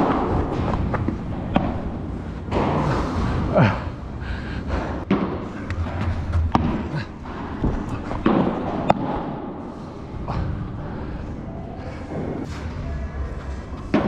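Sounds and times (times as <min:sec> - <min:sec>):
ball hit by rackets: 0:00.0 - 0:01.9, 0:05.0 - 0:09.6
ball bouncing on court and walls: 0:00.0 - 0:03.1, 0:04.7 - 0:09.7.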